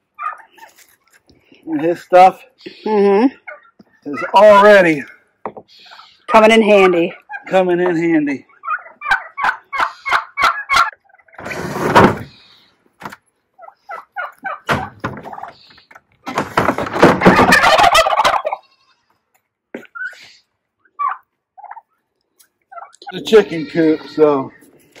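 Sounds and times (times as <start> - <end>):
turkeys gobbling: 0.0 - 1.2, 3.4 - 11.5, 13.5 - 18.7, 19.8 - 23.5.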